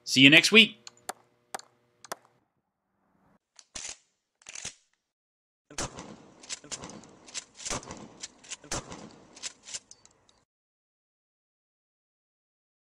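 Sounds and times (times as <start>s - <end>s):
gunshots: 5.7s - 9.9s.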